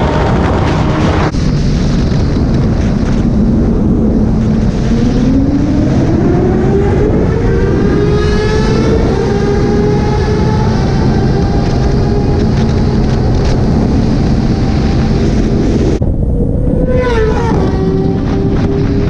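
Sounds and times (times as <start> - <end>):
motorcycle engine: 0.0 - 19.0
wind and road noise: 0.0 - 19.0.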